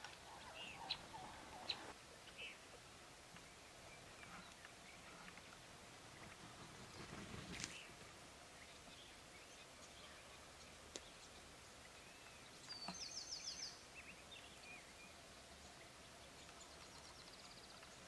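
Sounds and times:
faint bird chirps: 0.2 - 2.6, 8.5 - 18.0.

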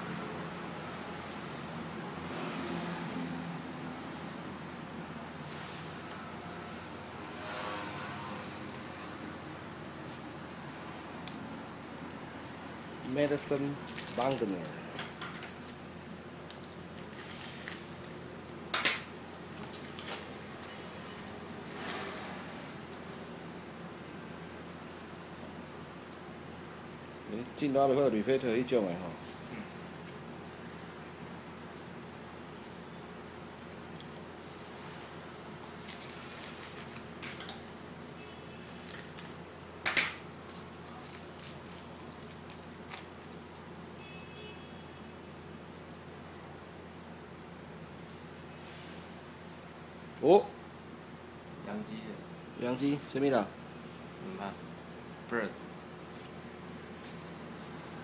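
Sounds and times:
foil wrapper crinkling: 13.1 - 14.7, 16.5 - 18.5, 19.2 - 20.7, 35.6 - 37.2, 38.6 - 39.8, 40.4 - 43.6
scissors snipping foil: 38.7 - 43.4.

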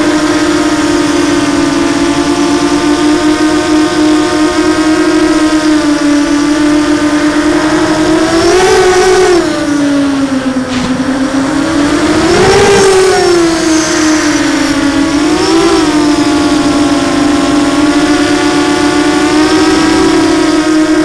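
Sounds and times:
drone motors and propellers whining: 0.0 - 21.0.

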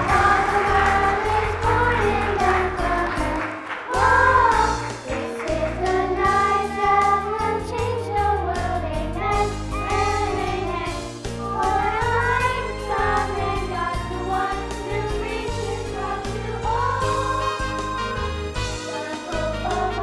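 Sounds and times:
children singing: 0.0 - 20.0
instrumental accompaniment with bass: 0.0 - 20.0.

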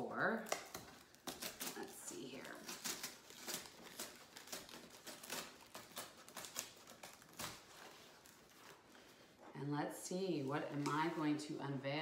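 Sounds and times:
cardboard tear strip ripping: 0.4 - 8.8.

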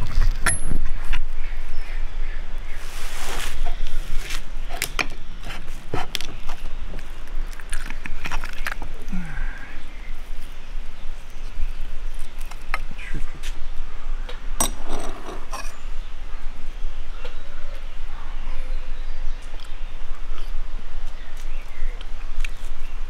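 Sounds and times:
cutlery scraping on ceramic plate: 14.6 - 15.8.

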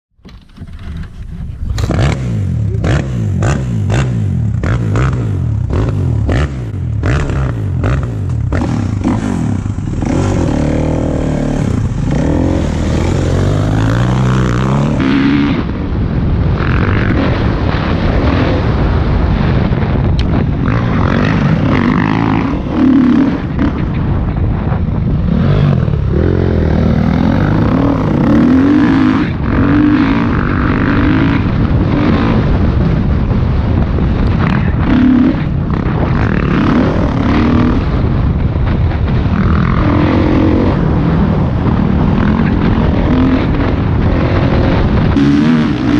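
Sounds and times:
dirt bike engine revving: 0.7 - 45.9.

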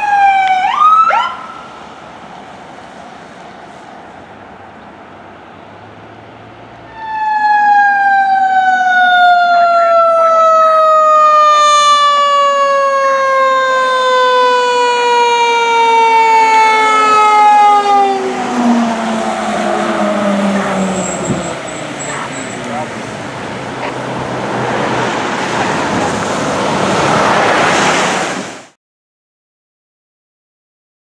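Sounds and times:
fire engine driving past: 0.0 - 28.8
mechanical siren winding down: 6.9 - 22.1.

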